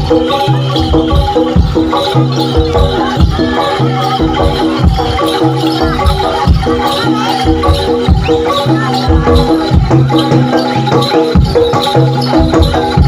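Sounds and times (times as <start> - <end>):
drum beats: 0.0 - 13.0
metallophones playing fast figure: 0.0 - 13.0.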